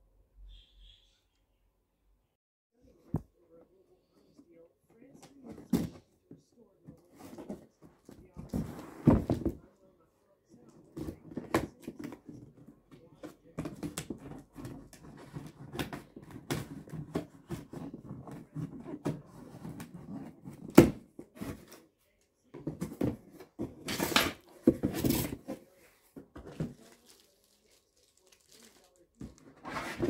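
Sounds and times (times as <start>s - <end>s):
cardboard box being opened: 22.7s - 30.0s.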